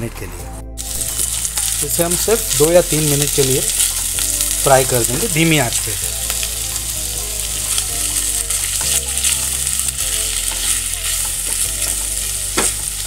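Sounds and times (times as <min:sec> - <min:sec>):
fish sizzling in oil: 0:00.8 - 0:13.0
spatula stirring in pan: 0:06.2 - 0:13.0.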